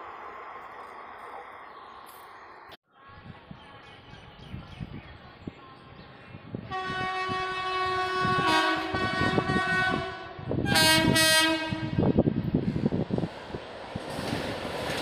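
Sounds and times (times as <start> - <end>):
locomotive horn blasts: 6.7 - 12.1
train wheels clattering over rail joints: 13.8 - 15.0.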